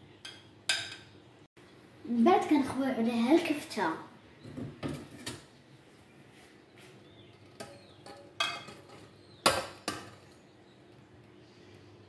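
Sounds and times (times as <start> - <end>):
metal spoon clanking on pan: 0.2 - 1.1, 7.5 - 10.3.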